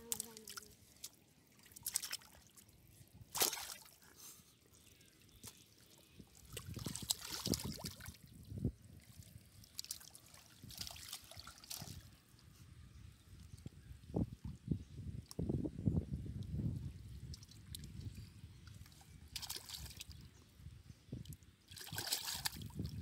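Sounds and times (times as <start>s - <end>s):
muddy water sloshing: 0.0s - 4.1s, 4.8s - 12.2s, 17.3s - 20.2s, 21.2s - 23.0s
small splashes in mud: 1.6s - 2.4s, 3.3s - 4.0s, 6.4s - 8.1s, 19.4s - 20.1s, 21.7s - 22.8s.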